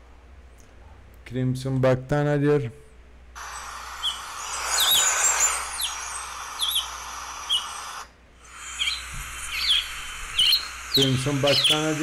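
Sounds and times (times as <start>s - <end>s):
field recording hiss: 0.0s - 12.0s
bird calls sharp down-slurred: 3.4s - 12.0s
high bird chirps: 3.4s - 12.0s.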